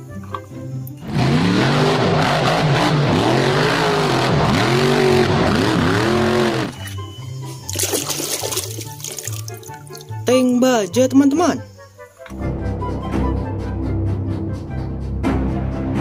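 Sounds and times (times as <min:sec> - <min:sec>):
background music: 0:00.0 - 0:16.0
truck engine revving: 0:00.9 - 0:07.1
water splashing in a tub: 0:07.6 - 0:10.2.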